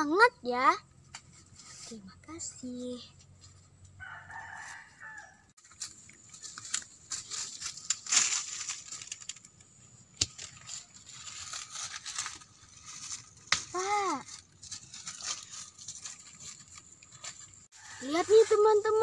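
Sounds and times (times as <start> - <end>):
rooster crowing: 4.0 - 5.5
corn stalks rustling and crackling: 5.6 - 19.0.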